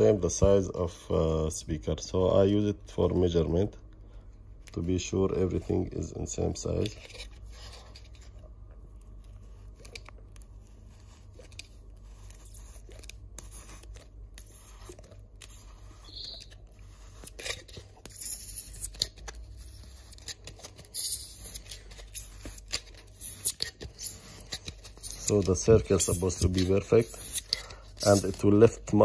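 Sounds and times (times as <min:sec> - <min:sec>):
glass jar rim scraping plastic: 0:09.6 - 0:28.6.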